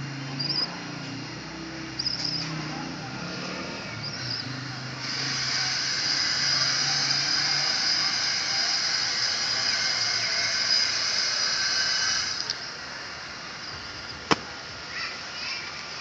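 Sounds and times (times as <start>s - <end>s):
high-pitched insect buzzing: 2.0s - 2.6s.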